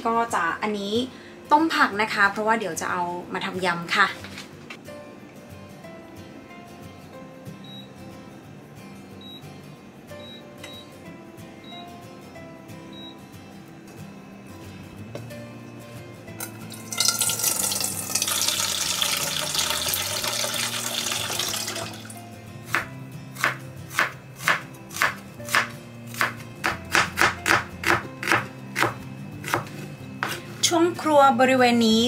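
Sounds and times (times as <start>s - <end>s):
soft background music: 0.0s - 32.0s
water pouring into saucepan: 16.7s - 22.2s
knife chopping on wooden board: 22.7s - 30.5s.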